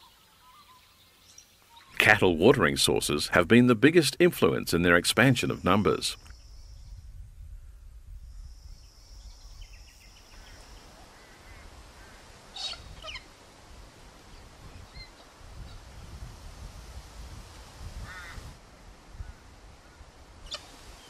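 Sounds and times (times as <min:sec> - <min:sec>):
birds calling: 0:09.2 - 0:13.4, 0:18.0 - 0:18.4, 0:19.2 - 0:21.0.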